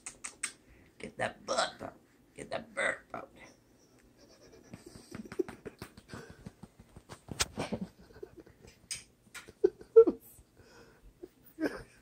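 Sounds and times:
woman making clicking mouth noises: 0:00.0 - 0:00.6, 0:04.7 - 0:07.0.

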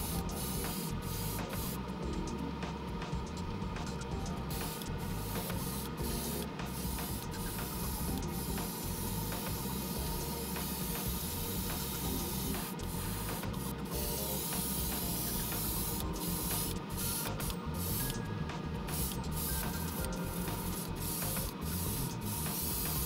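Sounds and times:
airbrush spraying hiss: 0:00.0 - 0:01.9, 0:04.2 - 0:23.0.

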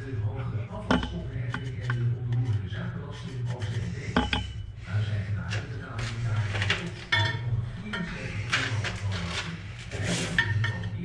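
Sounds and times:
tiles clinking and scraping: 0:00.8 - 0:02.6, 0:03.2 - 0:04.6, 0:05.5 - 0:11.0.

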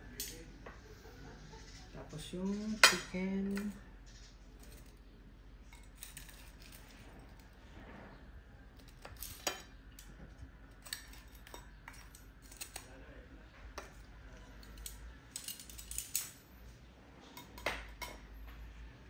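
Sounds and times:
utensils clinking on plates: 0:02.2 - 0:03.8, 0:08.8 - 0:10.2, 0:10.8 - 0:12.8, 0:17.3 - 0:18.6.

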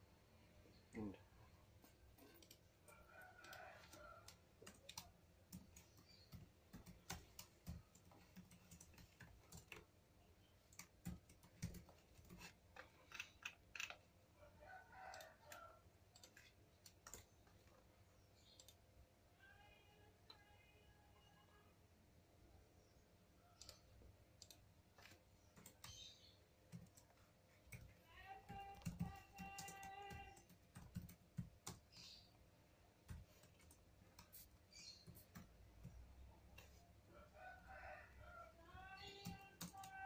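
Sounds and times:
computer mouse clicking: 0:02.1 - 0:09.9, 0:10.6 - 0:14.0, 0:15.1 - 0:17.8, 0:18.4 - 0:18.8, 0:23.6 - 0:32.3, 0:33.0 - 0:36.7
keyboard keys tapping: 0:03.4 - 0:09.9, 0:10.6 - 0:13.9, 0:26.7 - 0:31.9.

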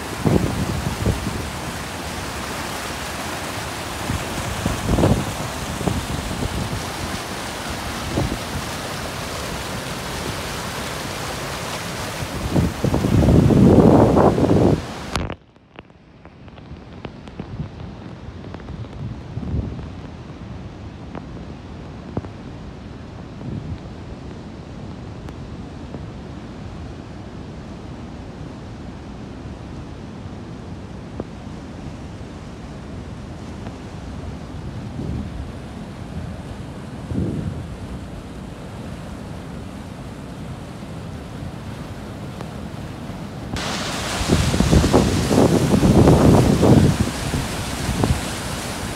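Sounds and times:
wind buffeting microphone: 0:00.0 - 0:10.5, 0:11.9 - 0:15.1, 0:34.4 - 0:38.4, 0:43.5 - 0:48.9
rushing stream: 0:00.0 - 0:48.9.

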